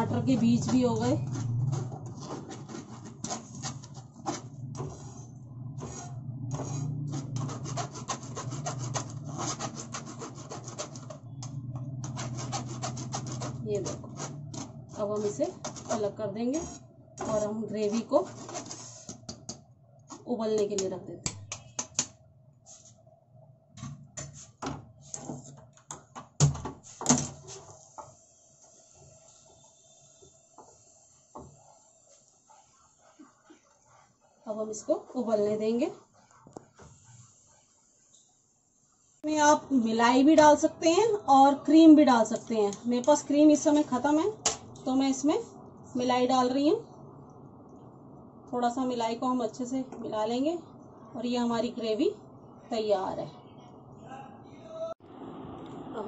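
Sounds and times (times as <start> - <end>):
spatula scraping through mesh strainer: 0.1 - 11.1.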